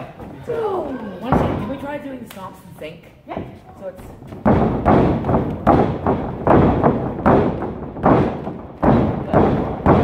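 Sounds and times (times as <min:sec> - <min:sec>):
feet stomping on ring floor: 0:04.1 - 0:10.0.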